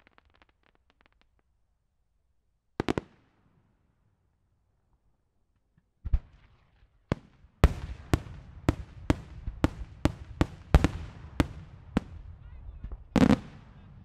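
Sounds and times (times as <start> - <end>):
fireworks bangs: 0.0 - 1.4, 6.1 - 14.0.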